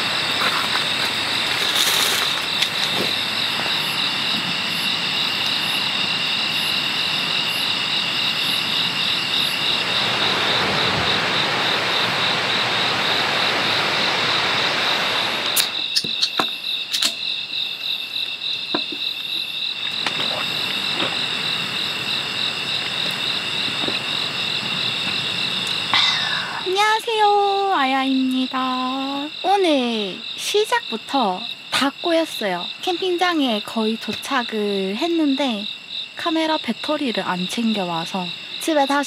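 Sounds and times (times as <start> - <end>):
insects chirping: 0.0 - 39.0
steady rushing noise: 9.5 - 15.6.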